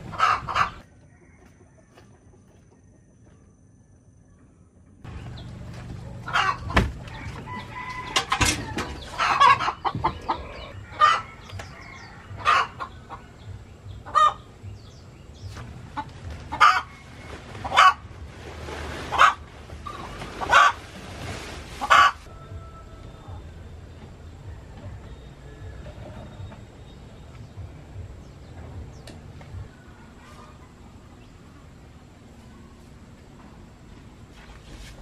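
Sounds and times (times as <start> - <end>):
chickens clucking: 0.0 - 3.0, 5.2 - 15.0, 15.9 - 18.2, 19.1 - 20.9, 21.7 - 22.3.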